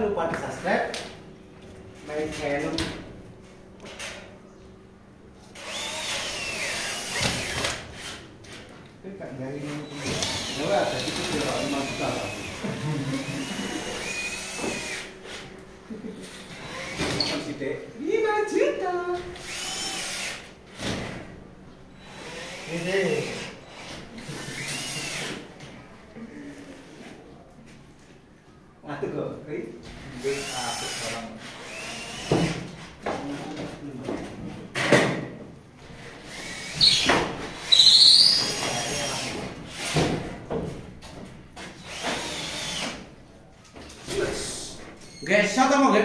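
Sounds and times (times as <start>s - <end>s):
cordless drill whining: 5.6s - 8.2s, 9.9s - 15.1s, 16.6s - 17.4s, 19.4s - 20.5s, 22.0s - 25.4s, 30.2s - 32.5s, 36.3s - 40.0s, 41.8s - 43.0s.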